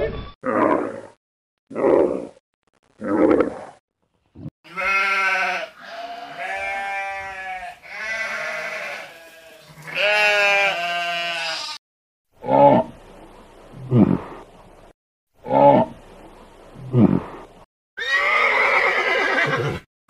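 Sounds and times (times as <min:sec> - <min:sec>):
sheep bleating: 0:04.7 - 0:11.8.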